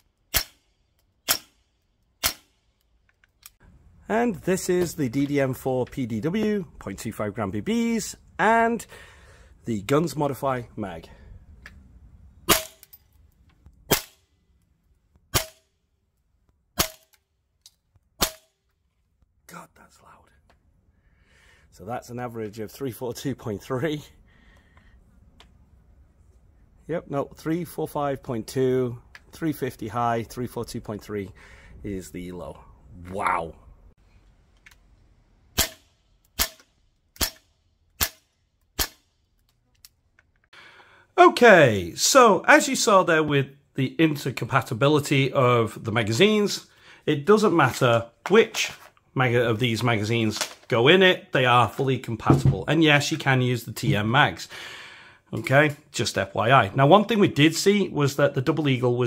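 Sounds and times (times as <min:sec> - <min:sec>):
airsoft rifle shots: 0:00.3 - 0:01.6, 0:02.2 - 0:02.6, 0:16.8 - 0:17.1.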